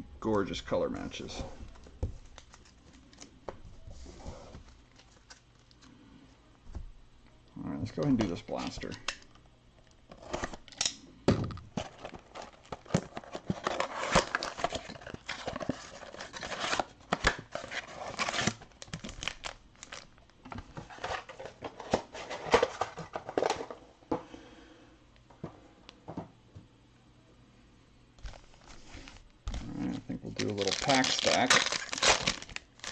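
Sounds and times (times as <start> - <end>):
foil packs rustling: 11.8 - 20.2, 28.2 - 32.9.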